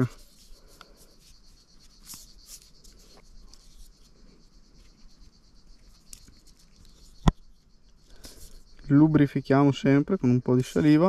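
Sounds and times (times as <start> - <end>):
fishing line rustling: 0.0 - 8.8.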